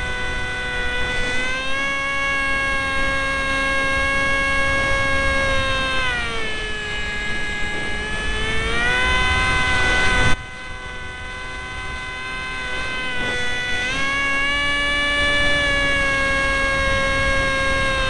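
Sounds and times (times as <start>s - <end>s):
electric motor whine: 0.0s - 18.0s.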